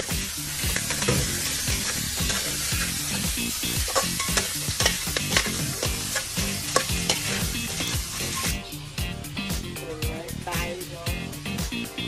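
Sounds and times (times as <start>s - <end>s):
food sizzling in a pan: 0.0s - 12.0s
utensil knocking and scraping: 0.6s - 7.9s.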